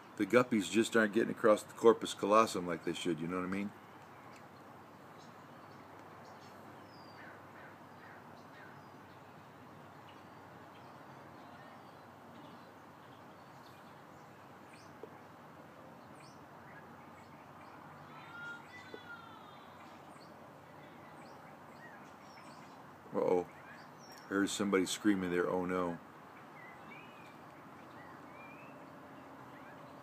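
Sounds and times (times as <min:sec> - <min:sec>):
bird chirps: 0:16.0 - 0:24.6, 0:25.4 - 0:30.0
distant scream: 0:18.0 - 0:20.0.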